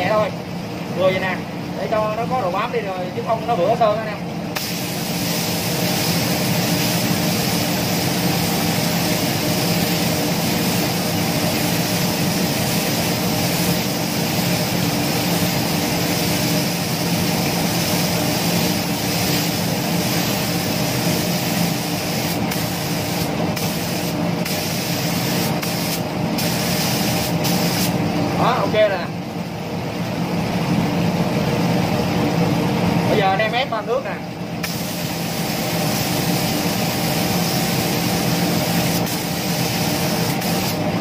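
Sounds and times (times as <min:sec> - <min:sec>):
spray gun hissing: 0:04.6 - 0:28.0, 0:34.6 - 0:40.8.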